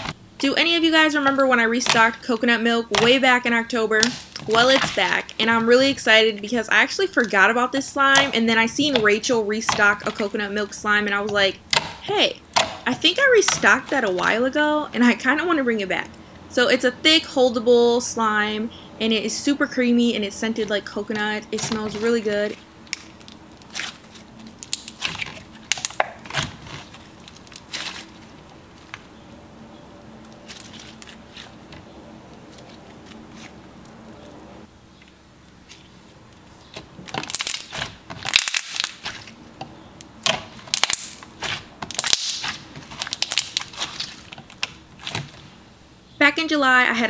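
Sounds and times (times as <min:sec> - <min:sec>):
slime crackling and popping: 0:22.8 - 0:28.6, 0:37.0 - 0:39.4, 0:40.0 - 0:45.4.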